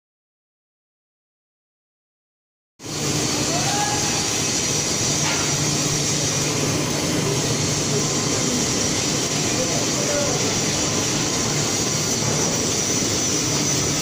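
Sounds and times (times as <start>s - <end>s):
industrial machinery din: 2.8s - 14.0s.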